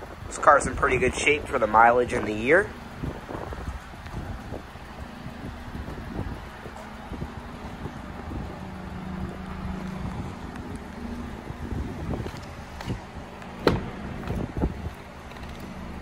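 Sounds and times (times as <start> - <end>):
wind buffeting microphone: 0.0 - 16.0
car door opening knocks: 13.6 - 14.4.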